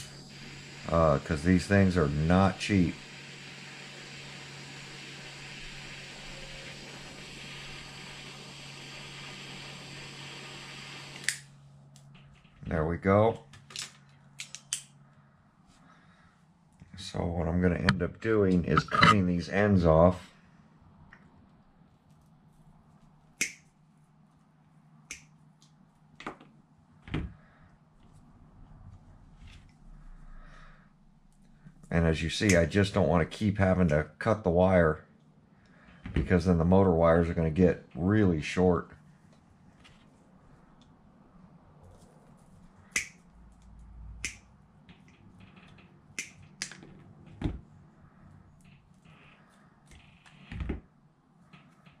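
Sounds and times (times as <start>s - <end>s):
side cutters snipping wire: 42.9s - 43.2s
wire cutters snipping wires: 42.9s - 47.0s.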